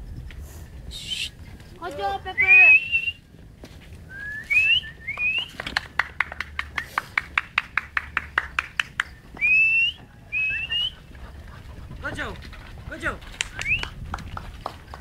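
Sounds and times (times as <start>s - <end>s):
person whistling: 2.4s - 3.2s, 4.1s - 5.6s, 9.4s - 11.0s.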